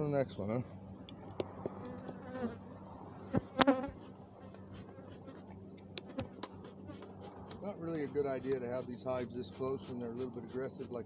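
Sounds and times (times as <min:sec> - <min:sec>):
loud bee buzz rising and falling: 0:01.4 - 0:04.0
bees buzzing: 0:01.5 - 0:07.5.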